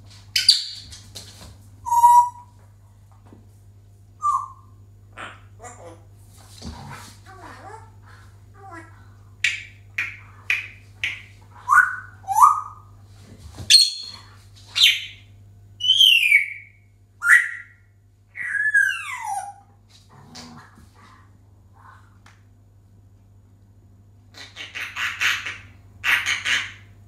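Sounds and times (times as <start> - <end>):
parrot whistling and calling: 1.9 - 2.5, 4.2 - 5.4, 9.4 - 12.9, 13.7 - 14.2, 15.8 - 19.6.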